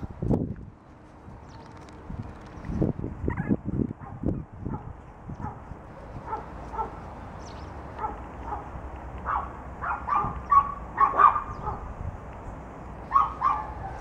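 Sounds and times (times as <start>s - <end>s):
puppies yipping: 5.4s - 11.9s, 13.1s - 14.0s.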